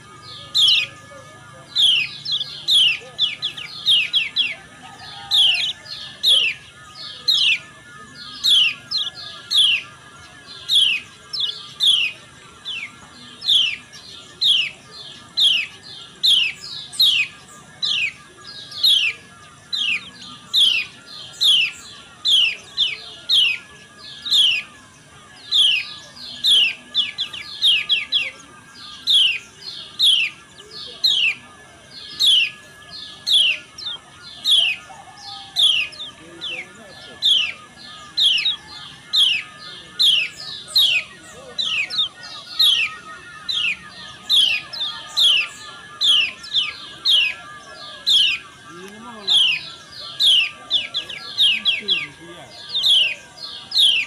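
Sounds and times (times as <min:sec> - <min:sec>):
bird chirps sweeping downward: 0:00.0 - 0:54.0.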